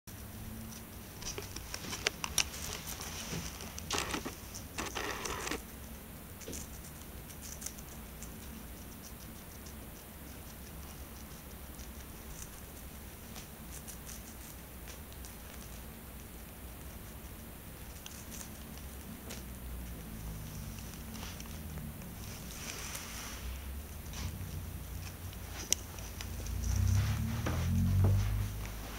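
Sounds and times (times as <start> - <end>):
hamster crunching vegetable: 0.4 - 23.1.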